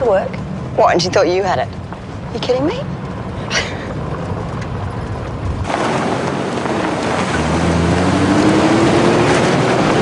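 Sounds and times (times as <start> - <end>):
road and wind noise: 0.0 - 10.0
vehicle engine accelerating: 4.0 - 10.0.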